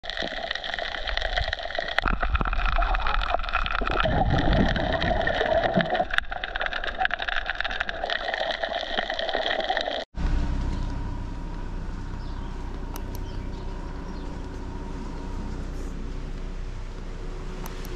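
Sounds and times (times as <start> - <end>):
crackling clicks underwater: 0.0 - 10.1, 12.7 - 13.4
muffled underwater rushing: 0.0 - 17.5.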